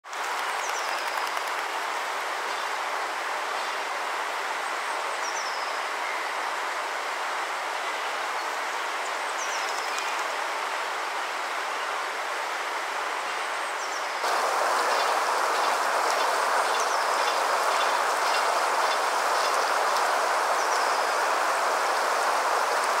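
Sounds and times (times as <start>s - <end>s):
waterfall rushing: 14.2s - 23.0s.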